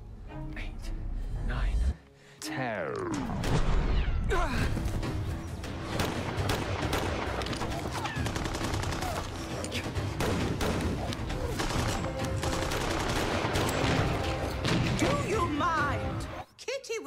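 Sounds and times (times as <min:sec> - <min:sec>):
background music: 0:00.0 - 0:17.0
flintlock pistol shots: 0:05.8 - 0:15.2.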